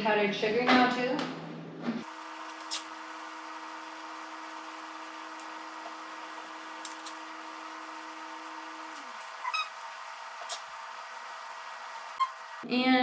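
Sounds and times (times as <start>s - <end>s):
machine hum: 2.0s - 12.7s
knife squeaking on plate: 9.4s - 9.8s.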